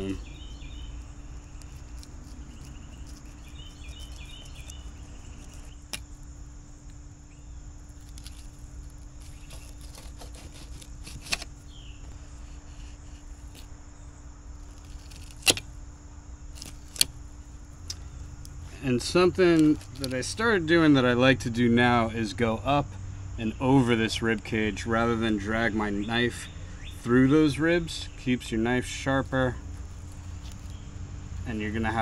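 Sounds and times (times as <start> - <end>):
low background hum: 0.0 - 32.0
knife slicing fish: 9.2 - 11.5.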